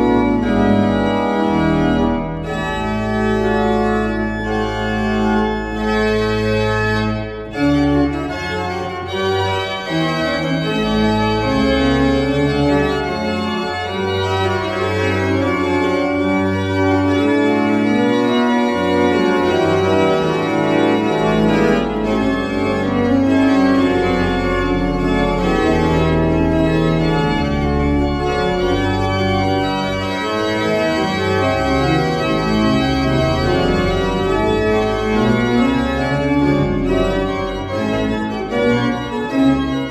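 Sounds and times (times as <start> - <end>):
pipe organ playing chords: 0.0 - 39.9.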